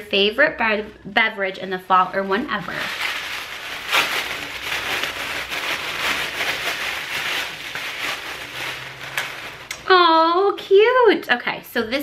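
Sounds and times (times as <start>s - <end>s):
tissue paper crinkling: 1.9s - 9.7s.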